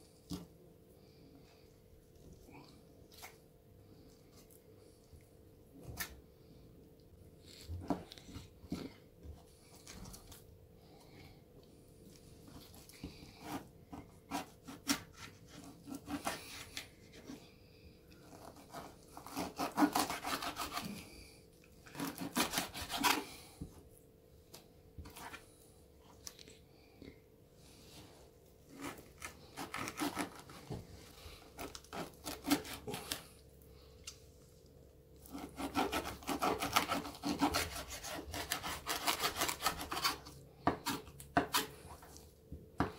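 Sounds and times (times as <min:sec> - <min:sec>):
knife scraping on wooden board: 0:18.3 - 0:21.0, 0:21.9 - 0:23.3, 0:28.7 - 0:30.7, 0:35.2 - 0:42.2.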